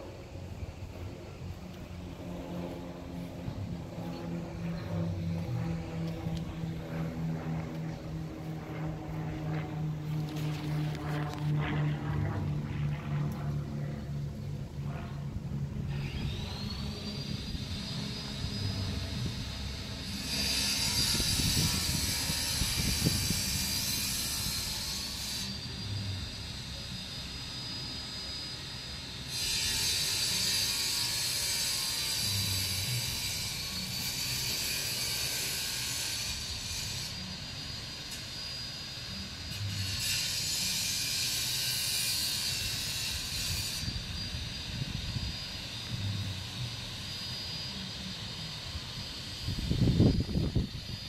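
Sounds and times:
low rumble on microphone: 0:00.0 - 0:20.0.

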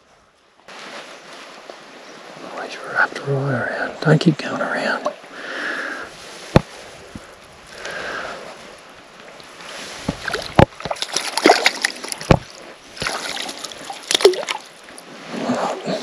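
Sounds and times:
water splashing and sloshing: 0:00.0 - 0:16.0
sharp knocks: 0:12.2 - 0:13.1.

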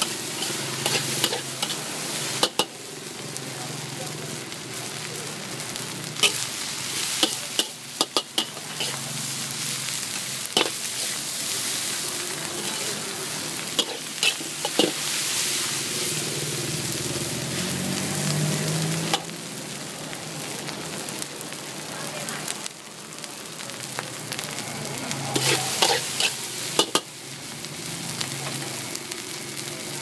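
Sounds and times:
metal spatula scraping wok: 0:00.0 - 0:02.7, 0:06.1 - 0:16.2, 0:25.0 - 0:27.1
rice sizzling in a wok: 0:00.0 - 0:30.0.

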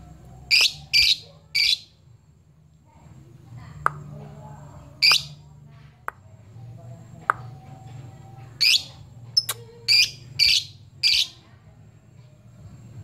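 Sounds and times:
faint low hum: 0:00.0 - 0:13.0
lovebird shrill calls: 0:00.5 - 0:01.9, 0:05.0 - 0:05.4, 0:08.6 - 0:11.4.

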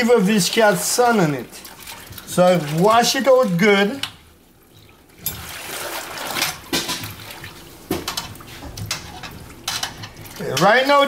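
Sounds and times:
water sloshing in a metal pot: 0:00.0 - 0:11.0.

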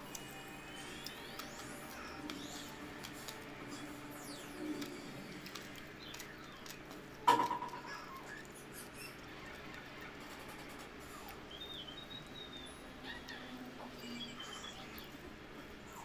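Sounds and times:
fingers working sticky rice: 0:00.0 - 0:11.5
soft chewing: 0:00.0 - 0:16.0.

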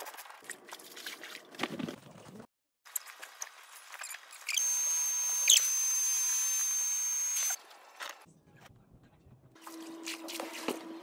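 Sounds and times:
electric air pump whining: 0:04.5 - 0:07.6.

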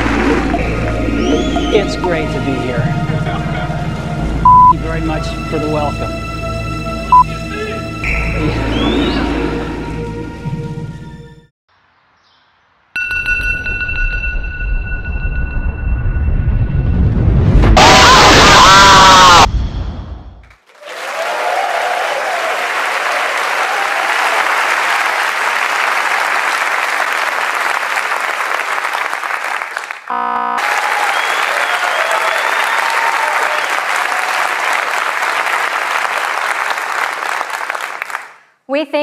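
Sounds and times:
loud explosion: 0:15.0 - 0:20.4
audience applauding and cheering: 0:20.6 - 0:38.4.

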